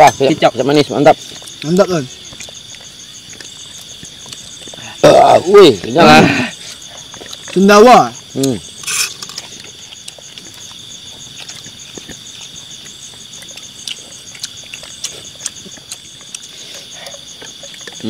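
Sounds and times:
crickets and night insects chorus: 0:00.0 - 0:18.0.

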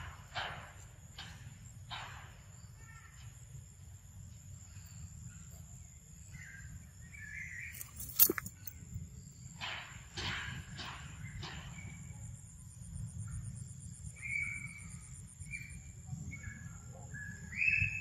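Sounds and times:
rustling footsteps: 0:07.8 - 0:08.7.

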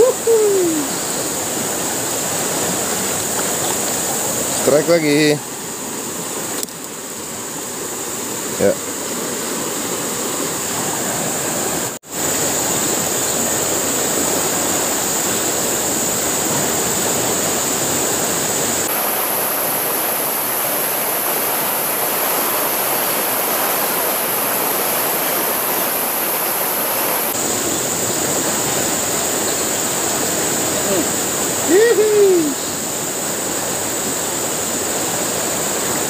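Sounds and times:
river water rushing: 0:00.0 - 0:36.0.

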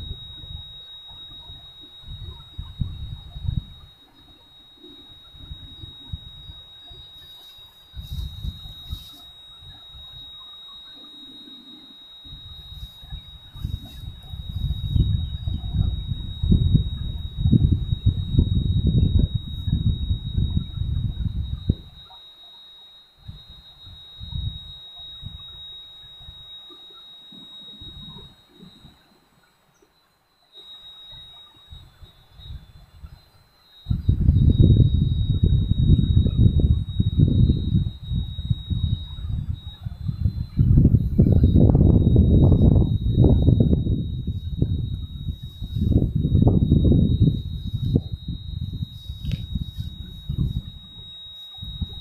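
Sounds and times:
wind buffeting microphone: 0:00.0 - 0:04.5, 0:07.9 - 0:10.3, 0:12.2 - 0:22.1, 0:33.8 - 0:51.0, 0:51.6 - 0:52.0
steady high-pitched whine: 0:00.0 - 0:52.0.

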